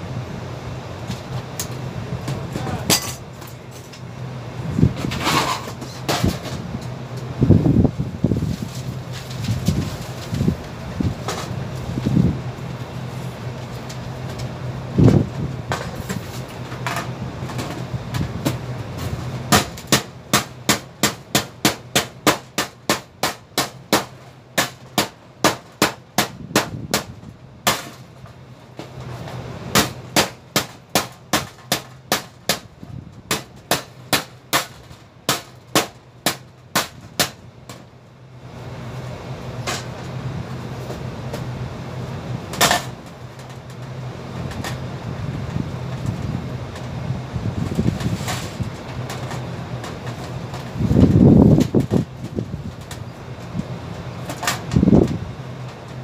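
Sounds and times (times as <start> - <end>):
steady low hum: 0.0 - 56.0
hammer on sheet metal: 19.5 - 27.9, 33.3 - 37.4.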